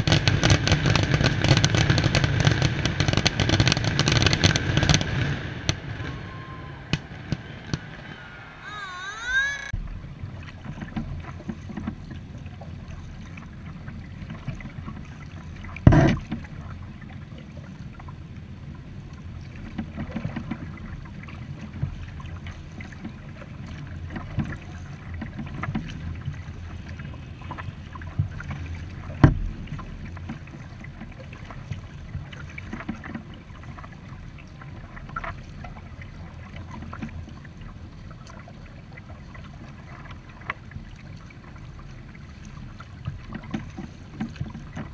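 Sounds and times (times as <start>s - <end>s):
water moving along hull: 0.0s - 44.9s
paddle strokes: 4.4s - 9.8s, 10.4s - 18.1s, 19.0s - 44.9s
steady low rumble: 4.6s - 8.6s.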